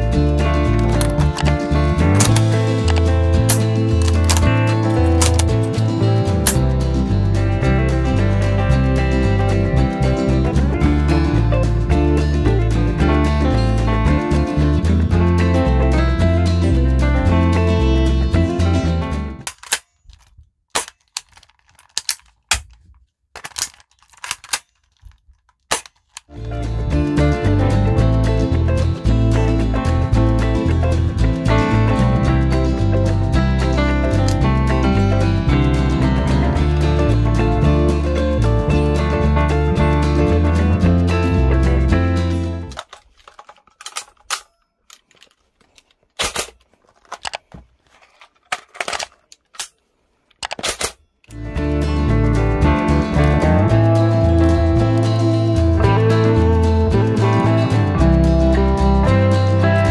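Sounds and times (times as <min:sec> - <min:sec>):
guitar music: 0:00.0 - 0:19.5, 0:26.3 - 0:42.8, 0:51.3 - 0:59.9
plastic toy rifle clicks: 0:02.2 - 0:05.5, 0:19.4 - 0:26.3, 0:42.8 - 0:47.5.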